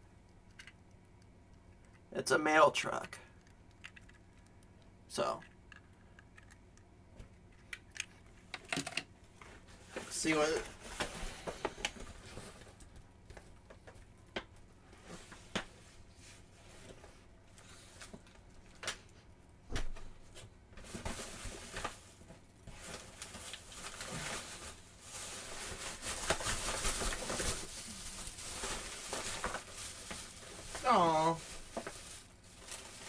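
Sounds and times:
plastic satchel crinkling and rustling: 0:20.8 - 0:33.0.

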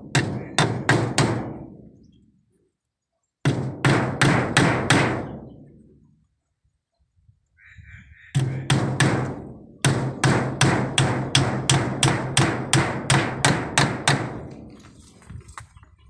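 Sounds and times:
hammer striking bamboo slats: 0:00.0 - 0:01.8, 0:03.4 - 0:05.4, 0:08.4 - 0:14.5.

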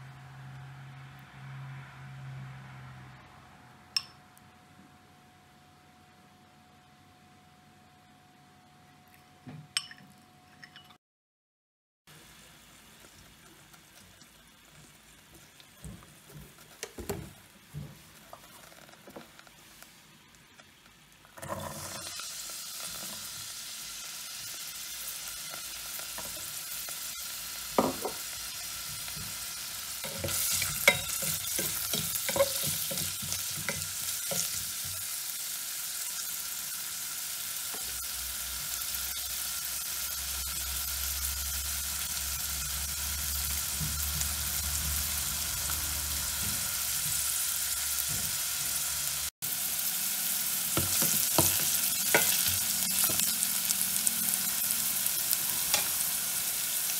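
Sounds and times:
carrots sizzling in a pot: 0:12.1 - 0:56.9
stirring clinks and scrapes: 0:30.0 - 0:34.6.

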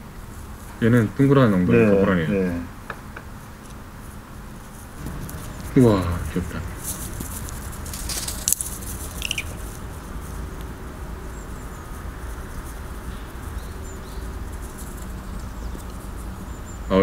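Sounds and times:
low rumble: 0:04.8 - 0:16.6
faint high bird chirps: 0:08.3 - 0:17.0.

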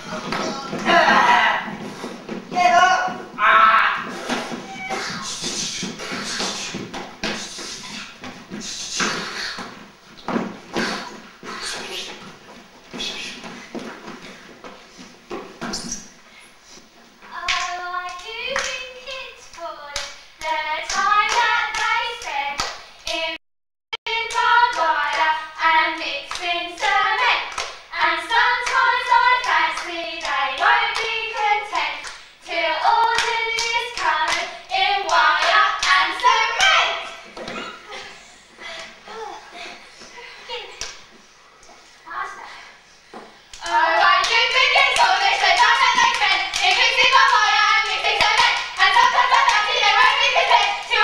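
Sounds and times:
voices singing unaccompanied: 0:00.0 - 0:01.9, 0:17.3 - 0:23.4, 0:24.0 - 0:37.7, 0:43.6 - 0:51.0.

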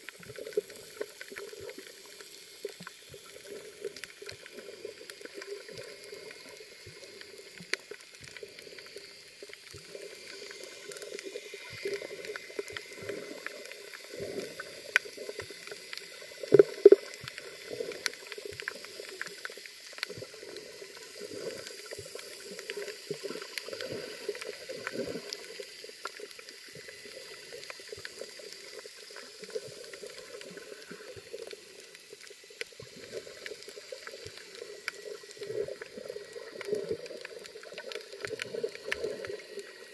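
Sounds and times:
sharp underwater clicks: 0:00.0 - 0:39.9
underwater gurgling: 0:00.0 - 0:39.9.

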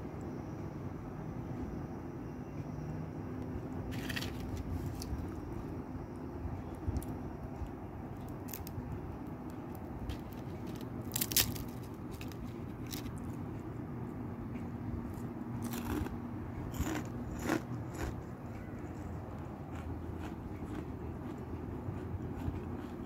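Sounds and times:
steady low hum: 0:00.0 - 0:23.0
crunching fried leaves: 0:03.9 - 0:05.4, 0:08.2 - 0:13.4, 0:15.1 - 0:18.7.

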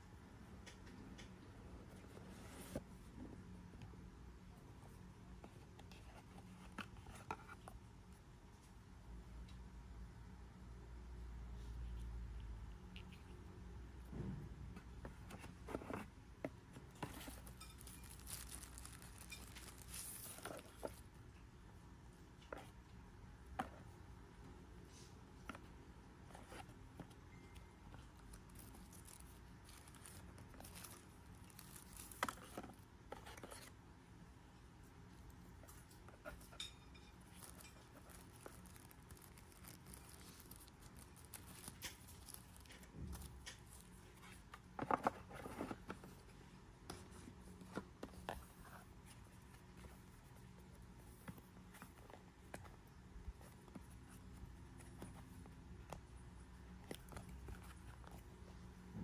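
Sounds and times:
plastic and paper rustling: 0:16.8 - 0:21.1, 0:26.3 - 0:33.8, 0:37.2 - 0:46.2.

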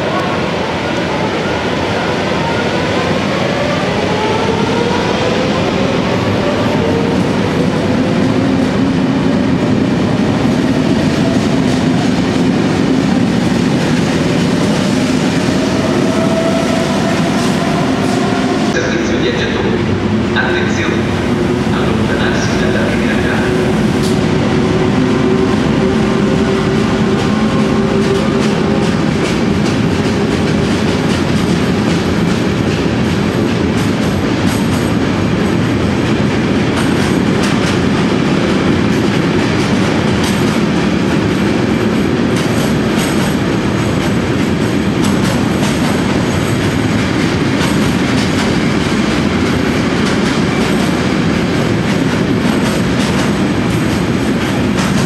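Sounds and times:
freight train rumbling past: 0:00.0 - 0:55.0
locomotive hum: 0:03.1 - 0:55.0.

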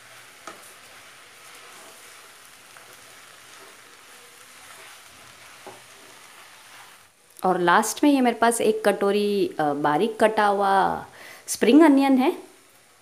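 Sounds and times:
wooden spatula stirring: 0:00.0 - 0:07.2
noodles sizzling in a pan: 0:00.0 - 0:13.0.

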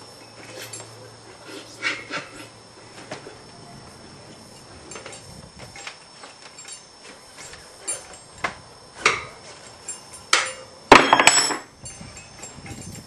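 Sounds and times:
knocks of wheel on wooden bench: 0:10.4 - 0:11.7.

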